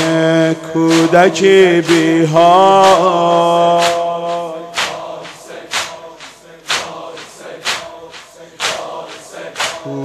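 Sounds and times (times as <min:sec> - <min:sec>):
crowd beating chests in unison: 0:00.0 - 0:10.0.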